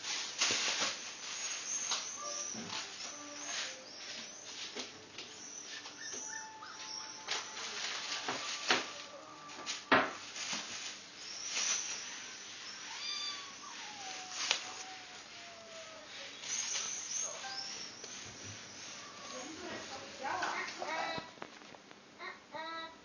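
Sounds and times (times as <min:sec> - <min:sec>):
plastic bag crinkling: 0:00.0 - 0:04.8, 0:06.6 - 0:18.2
cat meowing: 0:12.8 - 0:16.3.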